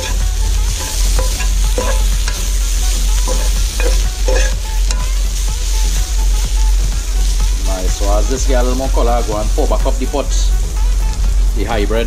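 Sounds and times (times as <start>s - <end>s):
metal spoon scraping a pan: 0.0s - 6.0s
chicken sizzling in a frying pan: 0.0s - 12.0s
low rumble: 0.0s - 12.0s.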